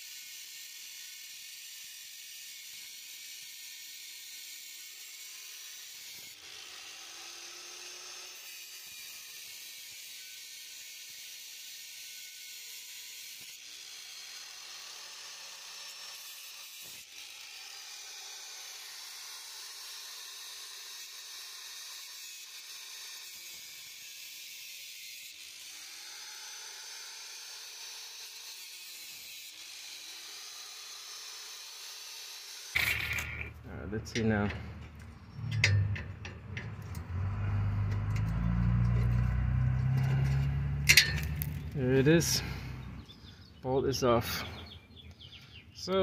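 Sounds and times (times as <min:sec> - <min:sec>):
angle grinder cutting metal: 0:00.0 - 0:46.0.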